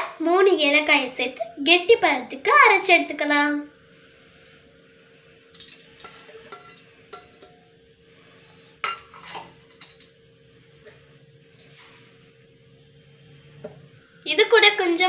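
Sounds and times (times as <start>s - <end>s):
steel jar and plate clinking: 5.6s - 7.6s, 8.8s - 10.0s.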